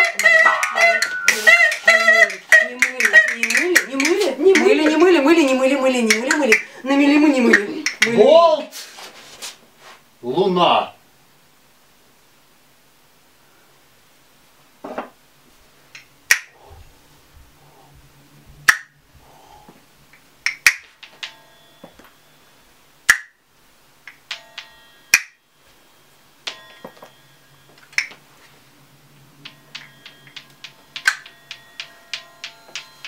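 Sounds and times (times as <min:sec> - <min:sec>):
sharp percussive snaps: 0:16.0 - 0:16.6, 0:18.7 - 0:18.9, 0:20.4 - 0:20.9, 0:23.1 - 0:23.4, 0:25.1 - 0:25.4, 0:29.4 - 0:32.9.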